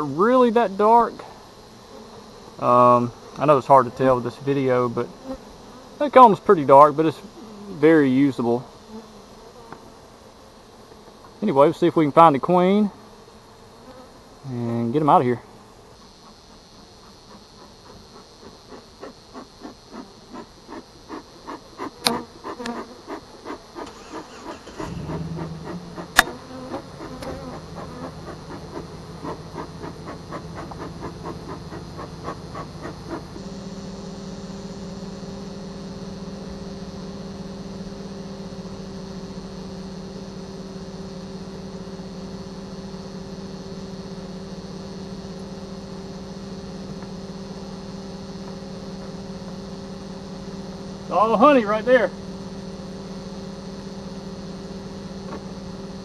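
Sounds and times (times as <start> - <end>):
bellows smoker puffing: 16.1 - 35.0
low drone: 24.8 - 56.0.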